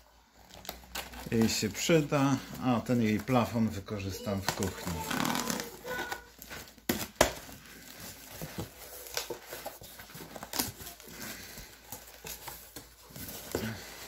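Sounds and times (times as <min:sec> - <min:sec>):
packing tape tearing: 0:00.4 - 0:01.6, 0:04.4 - 0:14.0
cardboard flaps rustling: 0:04.2 - 0:14.0.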